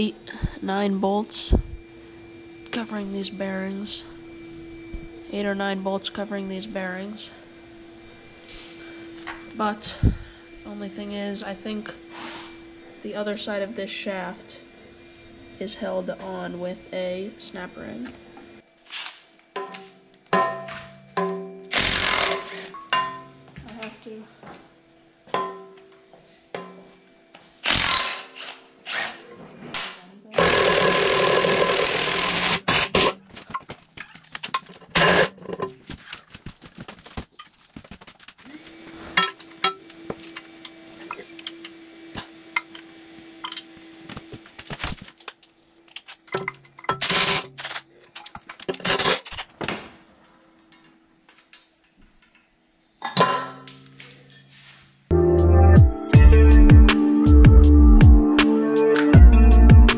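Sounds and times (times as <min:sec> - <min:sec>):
cordless drill-driver running: 0:21.7 - 0:22.7, 0:27.6 - 0:29.1, 0:30.4 - 0:33.2, 0:35.0 - 0:35.3.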